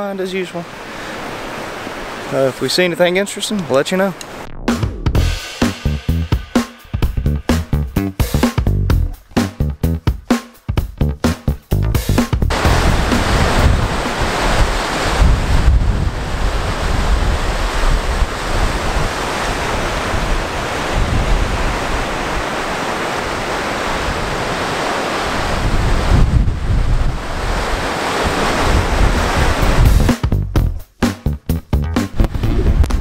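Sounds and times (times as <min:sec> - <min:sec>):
surf breaking on rocks: 0:12.5 - 0:30.1
wind buffeting microphone: 0:12.5 - 0:30.1, 0:32.1 - 0:33.0.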